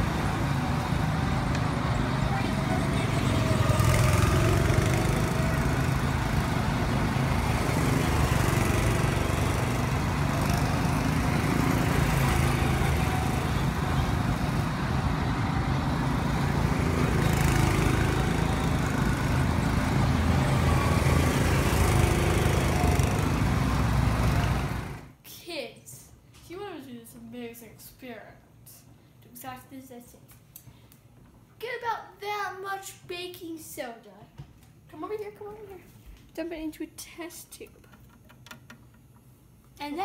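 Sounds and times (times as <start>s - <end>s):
go-kart engines droning: 0.0s - 25.1s.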